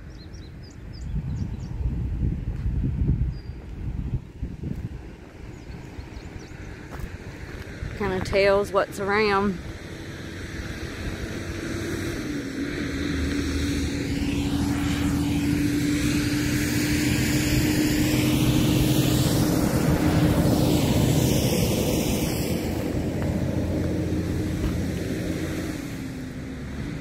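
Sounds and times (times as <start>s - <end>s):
propeller aircraft engine drone: 0.0s - 27.0s
phasing whoosh: 10.2s - 26.8s.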